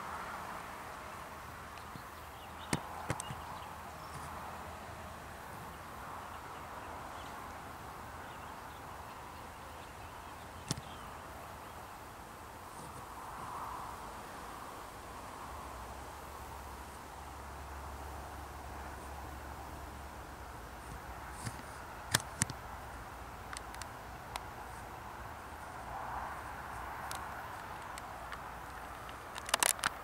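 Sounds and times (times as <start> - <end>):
outdoor background hiss: 0.0 - 30.0
sharp clicks: 2.6 - 3.4, 20.9 - 22.6, 23.4 - 24.5, 27.0 - 30.0.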